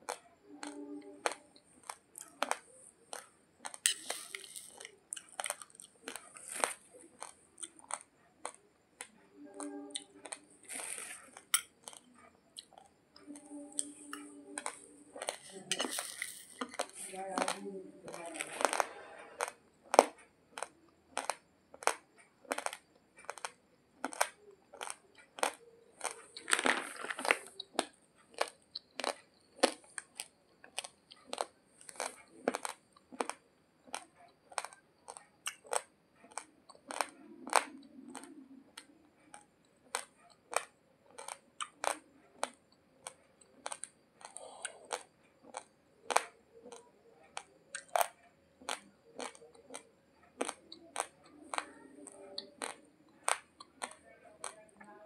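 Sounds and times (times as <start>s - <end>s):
rice grains crunched between teeth: 1.3s - 8.1s, 14.6s - 38.3s.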